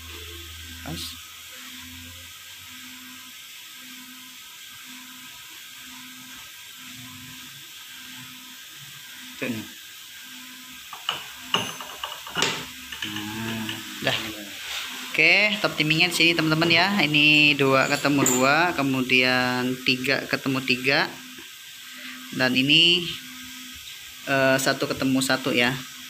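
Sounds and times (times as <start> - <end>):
metal gears clinking: 17.8 - 18.8.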